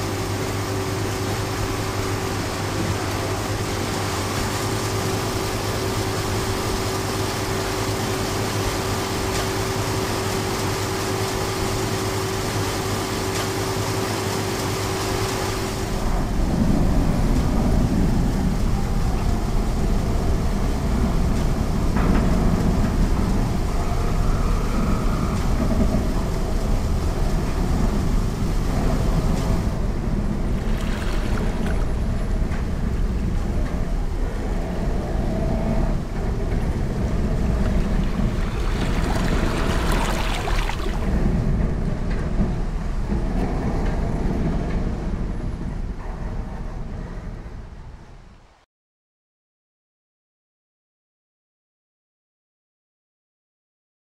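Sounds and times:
machinery hum: 0.0 - 48.2
deep rumble: 16.0 - 47.0.

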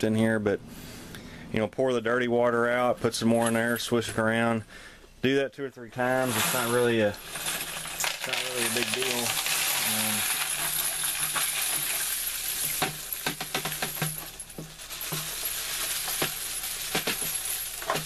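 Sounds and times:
brass cases clinking: 6.3 - 18.0.

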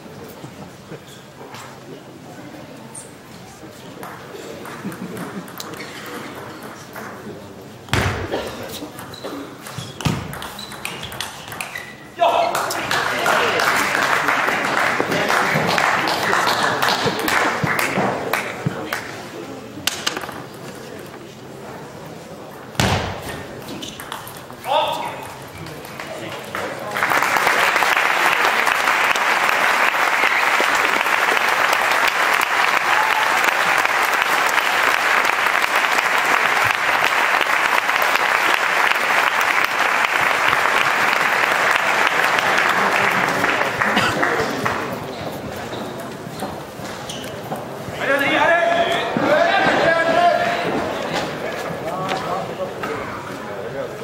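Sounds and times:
crowd voices: 0.0 - 54.0
spectators applauding: 12.5 - 19.1, 26.0 - 45.1.

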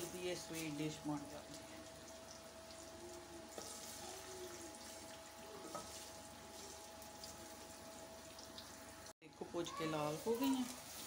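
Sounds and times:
faint sizzling in pot: 0.0 - 11.0
wooden spatula scraping pot: 5.6 - 6.7.

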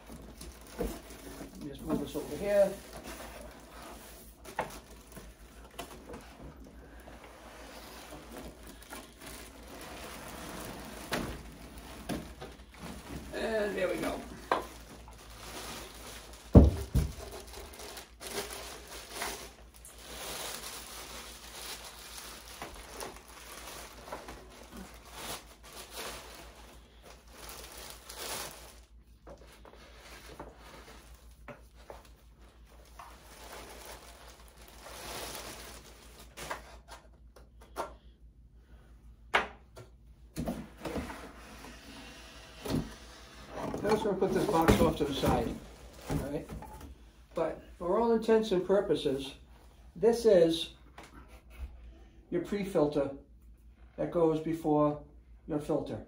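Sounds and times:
plastic bag crinkling: 0.0 - 36.4, 43.7 - 46.4.

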